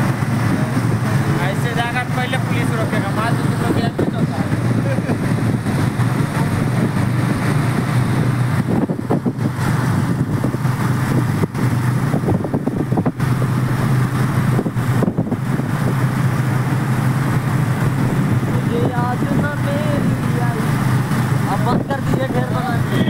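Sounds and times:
motorcycle running: 0.0 - 23.0
wind rushing over microphone: 0.0 - 23.0.

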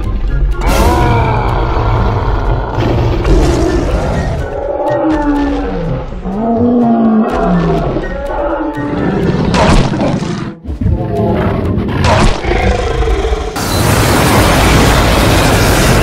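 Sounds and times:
cartoon monster roars and growls: 0.6 - 10.6
burst of noise: 13.6 - 16.0.

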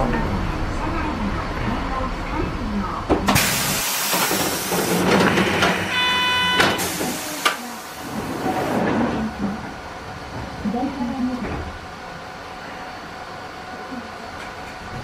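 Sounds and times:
loud air hiss: 3.4 - 4.8
short buzzer tone: 5.9 - 6.9.

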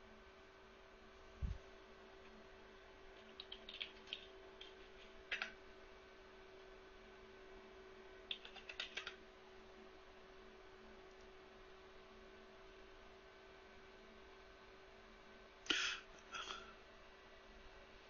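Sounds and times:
steady low hum: 0.0 - 18.0
keyboard typing clicks: 3.2 - 5.6, 8.3 - 9.2.

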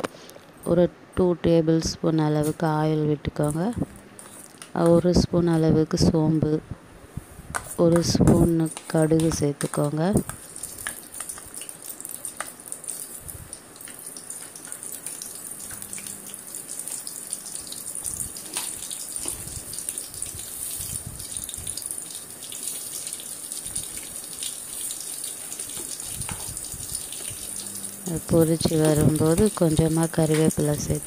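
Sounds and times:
seeds sizzling in hot oil: 10.2 - 31.0.

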